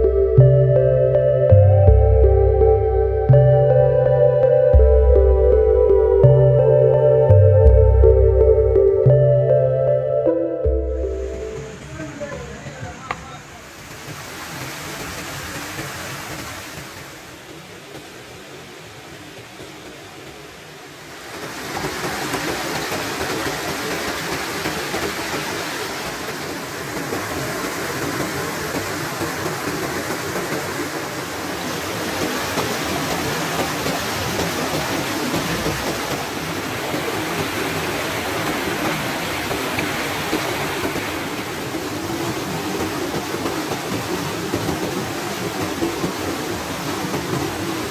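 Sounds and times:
water rushing over weir: 0:11.1 - 0:47.9.

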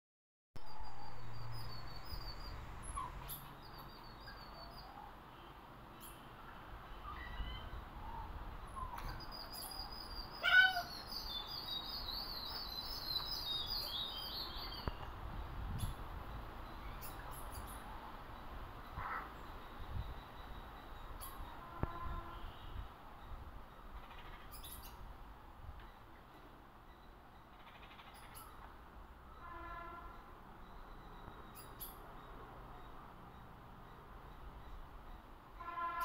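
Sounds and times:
birdsong twittering: 0:00.6 - 0:36.0
bird calling: 0:07.1 - 0:15.0.

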